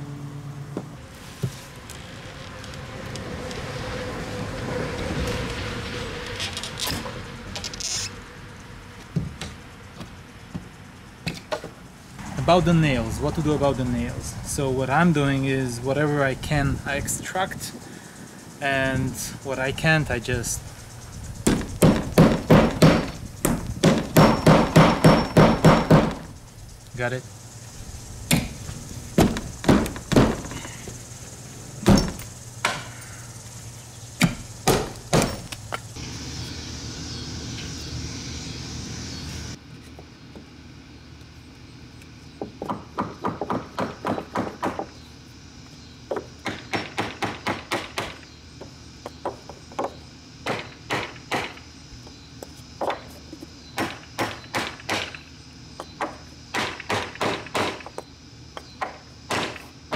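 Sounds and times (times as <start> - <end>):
hammer striking wood: 21.4 - 26.3, 29.2 - 30.5, 34.2 - 35.4, 42.5 - 44.9, 46.1 - 48.2, 49.2 - 51.6, 53.8 - 55.2, 56.0 - 57.9, 58.8 - 59.6.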